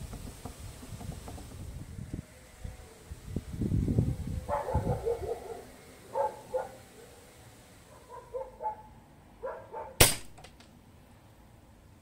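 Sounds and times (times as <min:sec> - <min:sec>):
air gun shot: 0:10.0 - 0:10.5.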